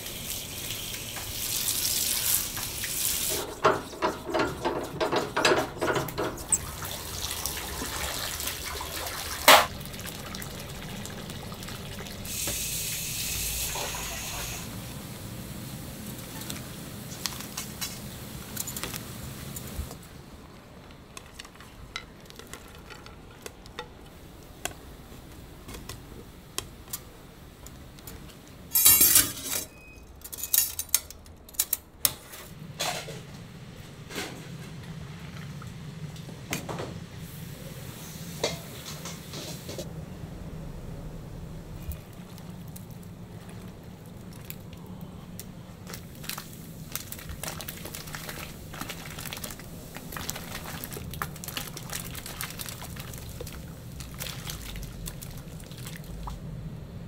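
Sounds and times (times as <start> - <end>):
utensils and dishes clattering: 2.2 - 7.6, 9.4 - 9.8, 28.7 - 31.8, 32.4 - 33.3, 38.3 - 39.9.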